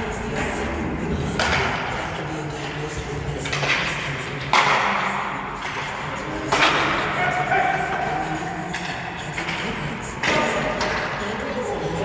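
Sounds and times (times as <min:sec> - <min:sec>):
stick hitting puck: 0:01.4 - 0:02.0, 0:03.4 - 0:07.8, 0:08.7 - 0:11.2.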